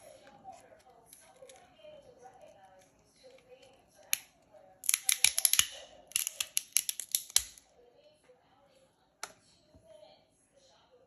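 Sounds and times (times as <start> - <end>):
crab shell cracking and snapping: 4.1 - 7.6.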